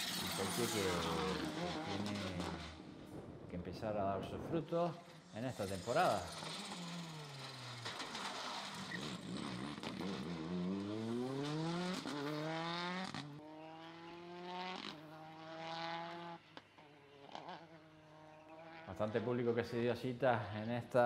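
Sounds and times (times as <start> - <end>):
rally car engine accelerating: 0.0 - 3.1, 5.6 - 16.5, 17.2 - 19.2.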